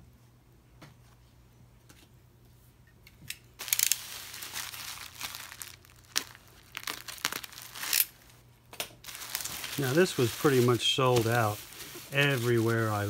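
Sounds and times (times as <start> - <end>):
bubble wrap crinkling and crackling: 3.6 - 8.4, 9.0 - 13.0.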